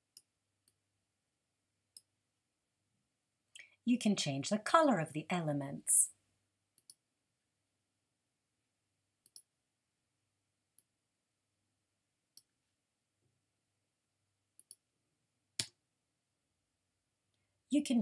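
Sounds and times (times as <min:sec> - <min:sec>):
computer mouse clicks: 0:06.8 - 0:07.0, 0:09.2 - 0:09.5, 0:14.6 - 0:14.8.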